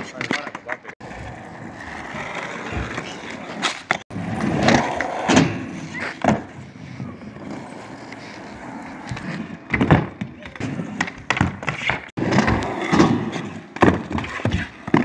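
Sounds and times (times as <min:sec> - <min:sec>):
skateboard clacks: 0:00.0 - 0:06.6, 0:07.5 - 0:15.0
skateboard wheels rolling on concrete: 0:00.0 - 0:15.0.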